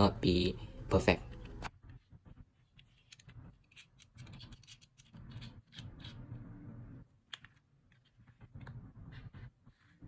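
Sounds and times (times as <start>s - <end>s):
light handling clicks and scrapes: 2.6s - 6.4s.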